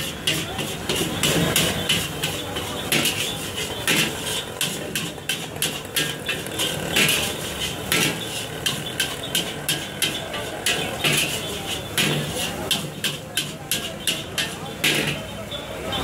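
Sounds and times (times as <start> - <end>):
metal spatula scraping steel wok: 0.0 - 16.0.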